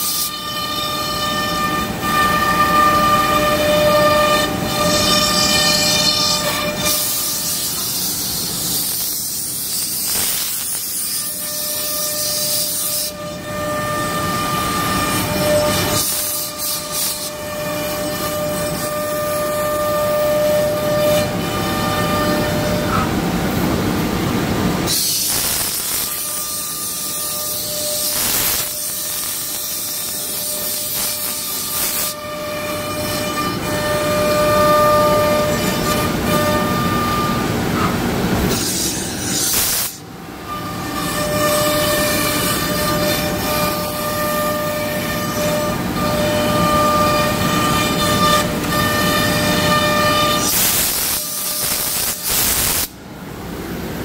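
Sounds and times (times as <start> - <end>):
cnc router whining: 0.0 - 9.0, 10.6 - 52.6
router bit hissing through board: 4.7 - 13.3, 24.8 - 32.2, 38.4 - 40.0, 40.8 - 52.9.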